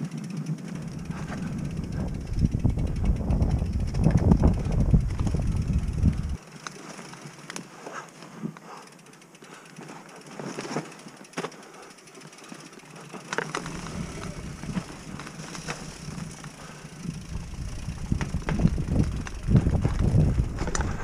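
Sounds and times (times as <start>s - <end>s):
bike clicks and knocks: 0.0s - 21.0s
bike tyres rustling over leaves: 0.0s - 21.0s
low rumble: 0.9s - 6.4s.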